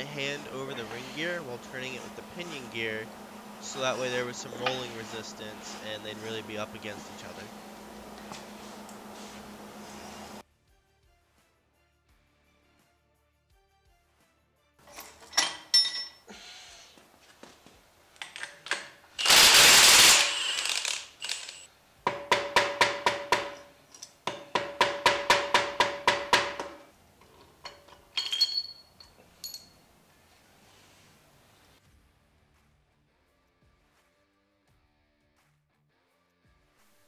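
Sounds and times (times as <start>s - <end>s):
metal clanks: 22.1s - 29.8s
light metal clinks: 27.3s - 29.9s.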